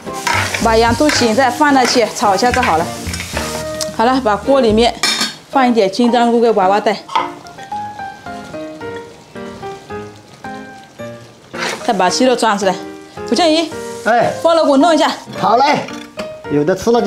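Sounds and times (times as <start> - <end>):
spatula scraping wok: 0.0 - 5.4, 11.5 - 12.1, 13.6 - 14.4
food sizzling: 0.0 - 17.0.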